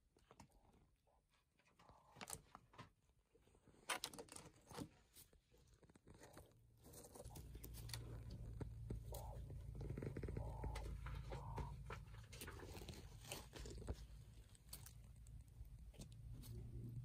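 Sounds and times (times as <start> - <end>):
birds pecking and rustling: 0.2 - 17.0
low steady hum: 5.4 - 17.0.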